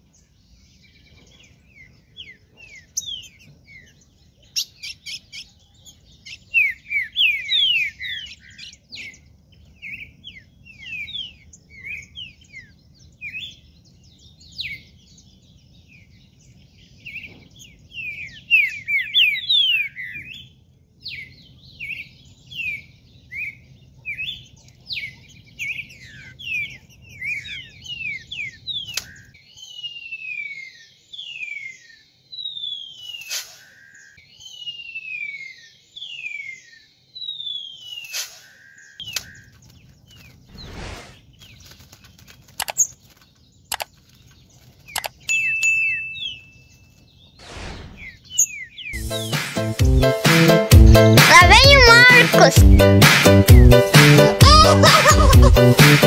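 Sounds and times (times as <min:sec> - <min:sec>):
bird song of descending whistles: 0:02.1 - 0:09.2, 0:25.0 - 0:39.4, 0:45.0 - 0:49.0.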